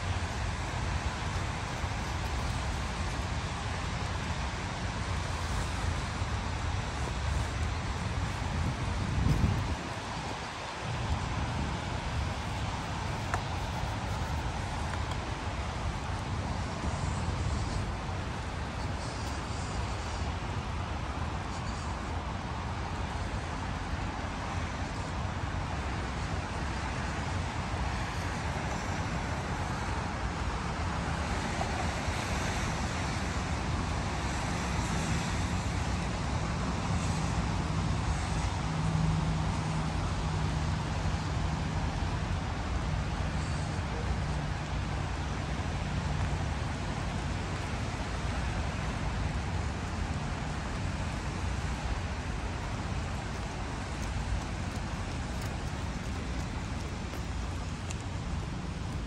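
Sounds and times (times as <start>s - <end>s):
distant city traffic rumble: 0.0s - 59.0s
low engine hum: 37.5s - 59.0s.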